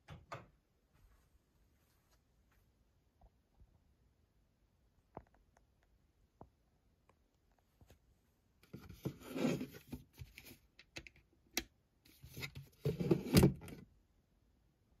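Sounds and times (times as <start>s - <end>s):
plastic rubbing and scraping: 8.6s - 10.7s, 12.1s - 13.8s.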